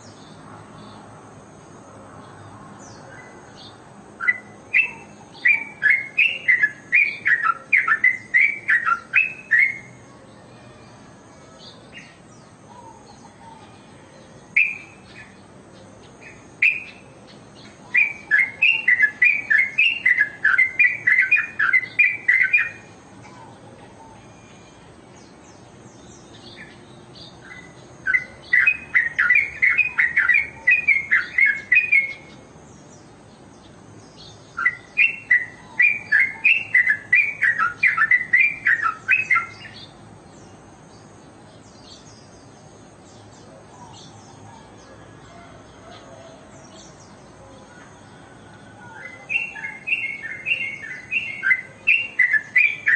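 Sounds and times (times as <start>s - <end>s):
bird singing chattering notes: 2.9s - 10.0s, 14.5s - 23.6s, 25.1s - 44.4s, 48.9s - 52.9s.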